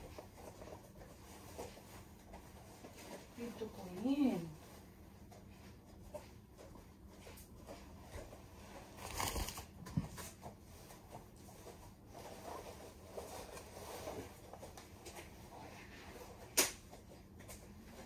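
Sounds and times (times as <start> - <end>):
rustling and handling: 0.0 - 18.0.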